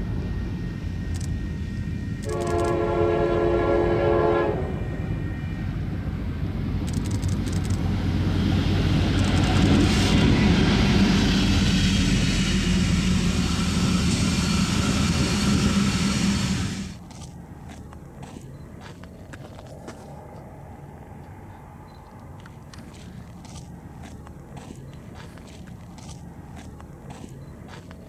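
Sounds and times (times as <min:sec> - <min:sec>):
diesel locomotive engine rumbling: 0:00.0 - 0:28.0
train wheels rumbling on rails: 0:00.0 - 0:28.0
locomotive horn blast: 0:02.2 - 0:05.7.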